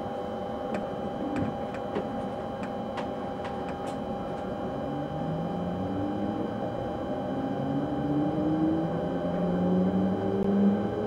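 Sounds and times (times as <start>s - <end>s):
steady electrical hum: 0.0s - 10.5s
train running noise: 0.7s - 6.4s.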